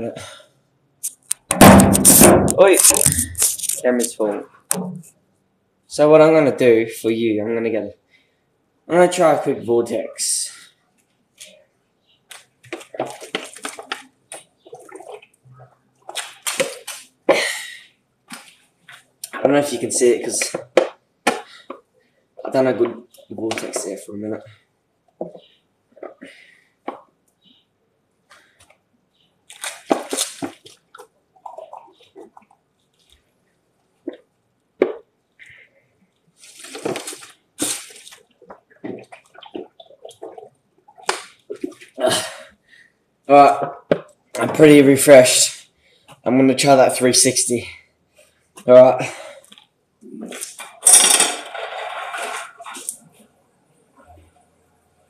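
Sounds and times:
water gurgling and gulping: 12.8 - 16.9, 29.5 - 35.7, 37.0 - 42.7.

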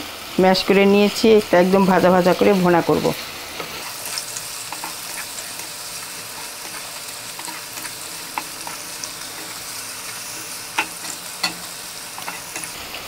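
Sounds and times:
onions sizzling in oil: 0.0 - 13.0
spatula scraping a pan: 3.5 - 13.0.

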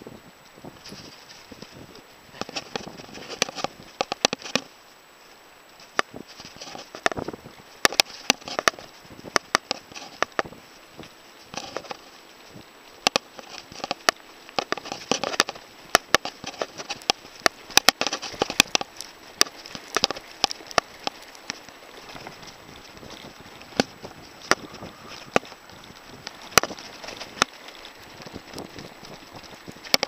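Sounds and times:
tyre noise on dirt: 0.0 - 4.8, 5.6 - 30.0
wind: 0.0 - 30.0
bike rattling and knocking: 13.0 - 30.0.

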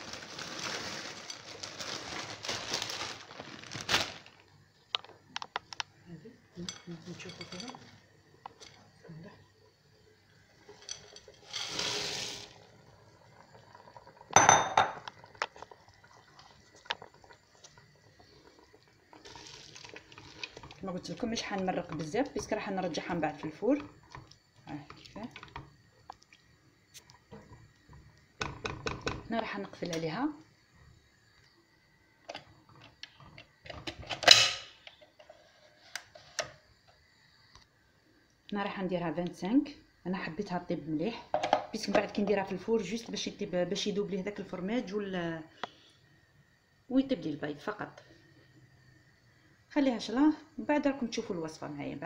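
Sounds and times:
frozen peas rattling into pot: 0.0 - 4.4, 10.8 - 12.6, 19.1 - 22.9.

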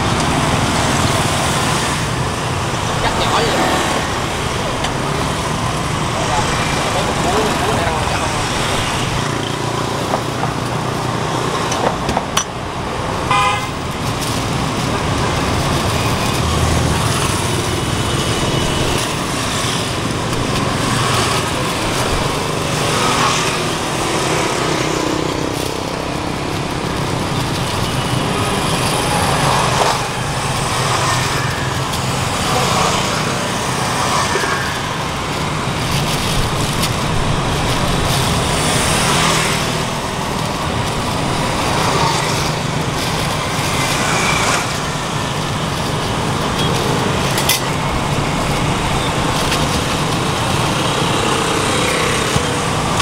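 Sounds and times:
road traffic passing: 0.0 - 53.0
vehicle horn tooting: 13.3 - 13.8.

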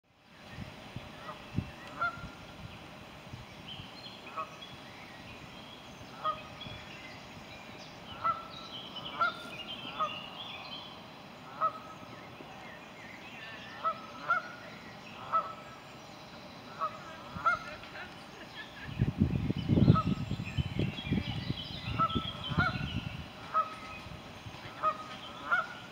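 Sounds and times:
geese honking: 1.2 - 2.4, 6.2 - 6.6, 8.1 - 10.4, 11.4 - 12.1, 13.8 - 14.6, 15.2 - 15.8, 16.7 - 18.1, 21.9 - 24.0, 24.7 - 25.9.

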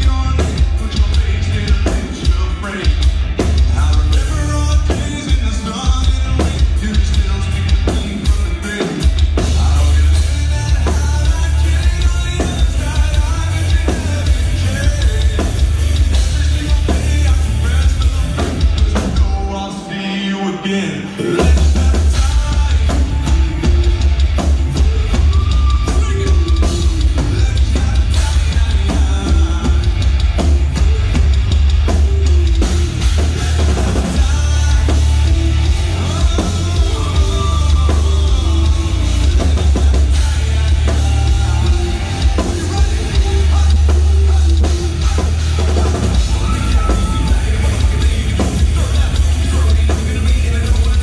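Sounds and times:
pounding drums: 0.0 - 19.6, 21.2 - 51.0
heavy bass: 0.0 - 19.8, 20.7 - 51.0
person singing: 0.0 - 51.0.

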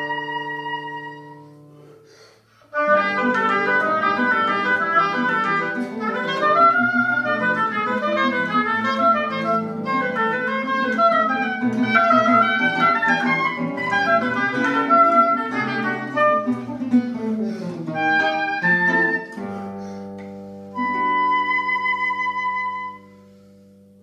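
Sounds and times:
high woodwind note: 0.0 - 2.0, 2.6 - 24.0
classical guitar playing: 0.0 - 24.0.

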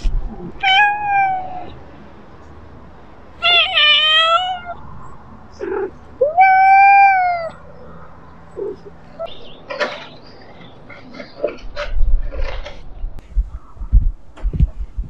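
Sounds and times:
cat meowing: 0.4 - 1.8, 3.4 - 4.8, 5.6 - 7.6.

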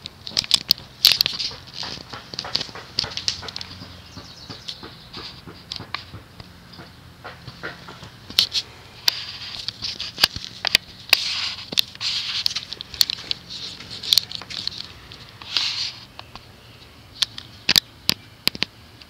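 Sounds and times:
sharp clicks and crackles: 0.0 - 16.5, 17.2 - 19.0
fan motor humming: 0.0 - 19.0
hissy rustles: 7.3 - 17.7.

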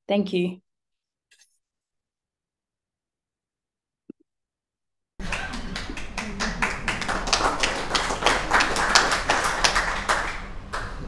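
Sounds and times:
small audience clapping: 5.2 - 11.0.

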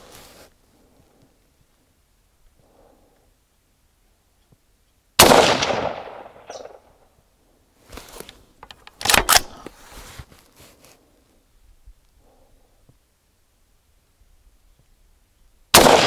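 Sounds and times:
rifle shot: 5.2 - 6.9, 15.7 - 16.0
rifle action metallic clacks: 8.6 - 9.7.

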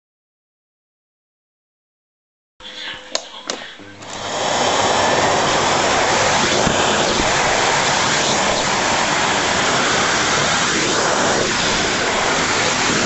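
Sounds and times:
vacuum cleaner running: 3.8 - 13.0.

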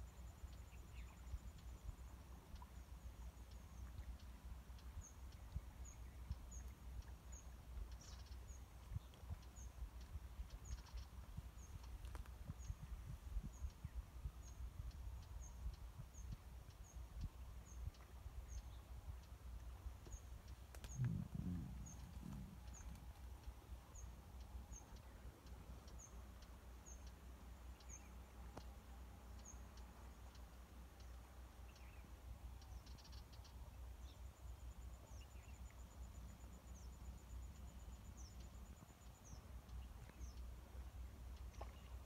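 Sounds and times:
faint low rumble: 0.0 - 42.0
bird chirping: 2.5 - 12.0, 20.0 - 40.5.

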